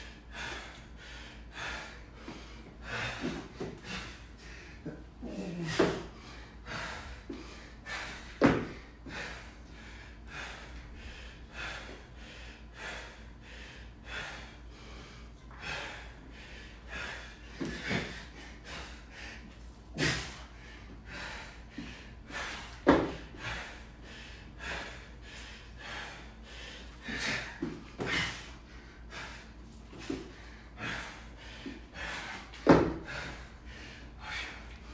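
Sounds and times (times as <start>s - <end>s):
man breathing heavily: 0.0s - 34.9s
thumps on rubber mat: 8.4s - 8.8s, 22.8s - 23.2s, 32.6s - 33.0s.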